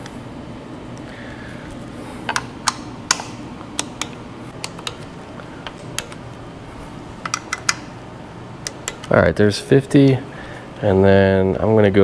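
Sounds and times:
torque wrench clicking: 0:07.2 - 0:07.9, 0:08.6 - 0:09.2.

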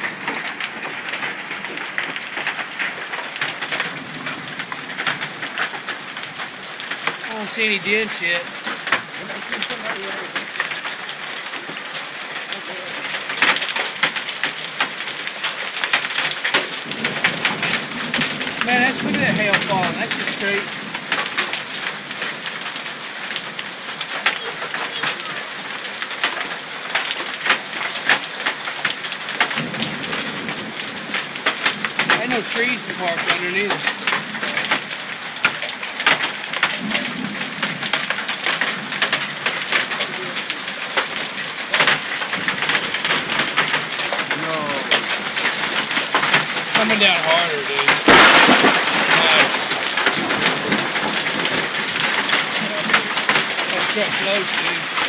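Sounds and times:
hailstones clicking on pavement: 0:00.0 - 0:55.0
heavy rain rushing: 0:00.0 - 0:55.0.

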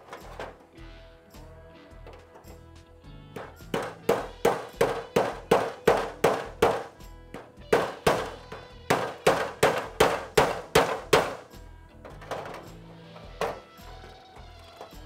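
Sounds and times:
hammer striking sheet metal: 0:03.4 - 0:14.1.

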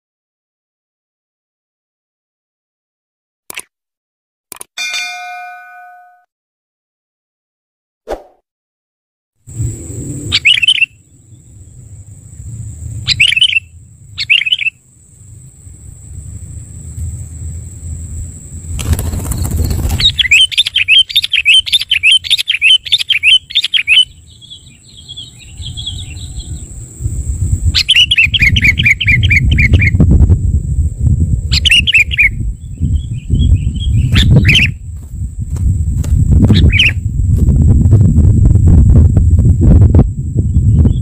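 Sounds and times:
steady high whine: 0:09.5 - 0:20.2
birds chirping rapidly: 0:10.2 - 0:12.0, 0:12.9 - 0:14.9, 0:18.8 - 0:26.8, 0:27.7 - 0:30.0, 0:31.5 - 0:35.0, 0:36.5 - 0:37.0, 0:40.5 - 0:41.0.

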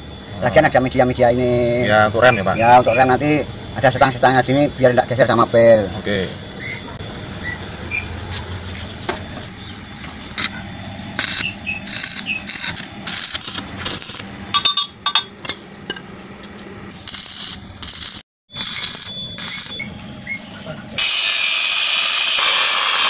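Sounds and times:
welding arc crackling: 0:10.4 - 0:14.3, 0:17.0 - 0:19.8, 0:21.0 - 0:23.0.

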